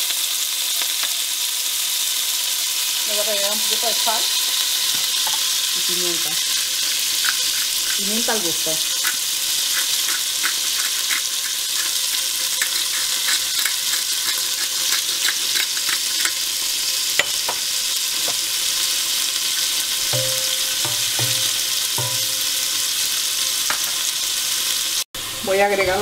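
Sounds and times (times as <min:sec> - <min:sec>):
meat sizzling in hot oil: 0:00.0 - 0:26.0
wooden spoon scraping pot: 0:06.2 - 0:16.4.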